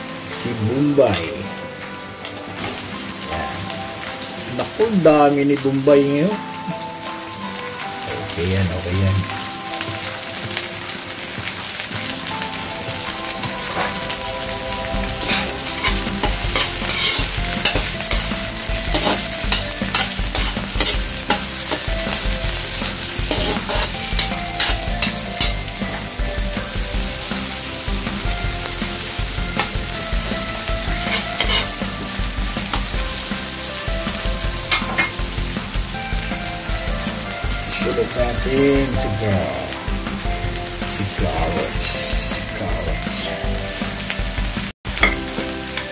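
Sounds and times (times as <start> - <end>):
food sizzling in oil: 0.0 - 45.9
metal spatula scraping wok: 13.7 - 26.2, 28.8 - 33.5, 34.6 - 35.7
spatula clinking against wok: 15.2 - 26.1, 31.0 - 31.8, 44.9 - 45.9.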